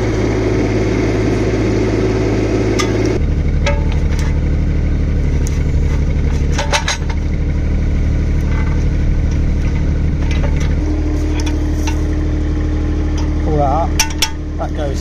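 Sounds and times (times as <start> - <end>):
diesel engine running: 0.0 - 15.0
sharp metal clanks: 2.8 - 4.6, 5.3 - 12.2, 13.1 - 14.5.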